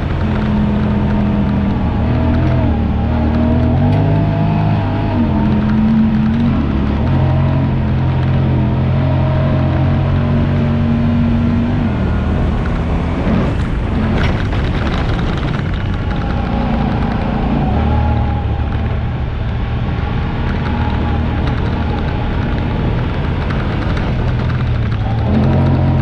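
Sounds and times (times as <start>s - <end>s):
rush of noise: 0.0s - 26.0s
vehicle engine running: 0.0s - 26.0s
wind and sand noise: 0.0s - 26.0s.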